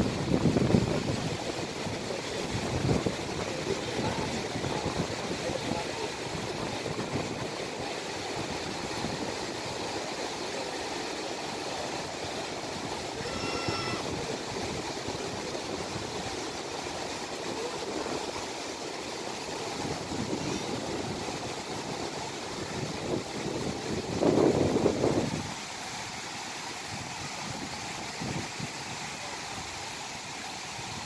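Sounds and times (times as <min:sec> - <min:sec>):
wind on microphone: 0:00.0 - 0:09.9, 0:11.8 - 0:16.8, 0:19.6 - 0:25.6
sea surf: 0:00.0 - 0:31.0.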